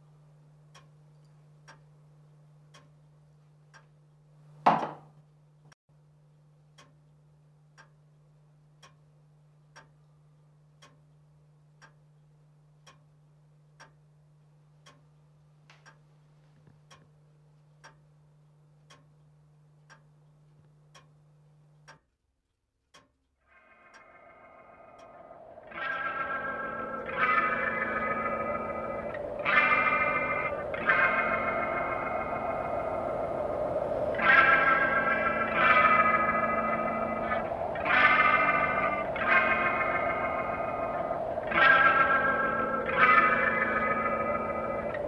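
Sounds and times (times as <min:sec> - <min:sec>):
clock ticking: 0:00.6 - 0:03.0, 0:03.7 - 0:04.0, 0:06.7 - 0:45.0
low hum: 0:23.5 - 0:45.0
loud whoosh: 0:24.0 - 0:45.0.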